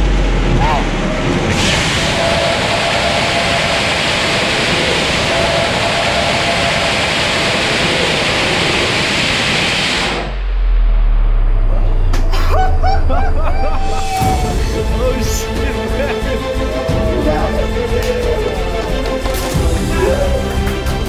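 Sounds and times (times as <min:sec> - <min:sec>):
rocket engine hissing: 0:01.5 - 0:10.4, 0:13.8 - 0:21.0.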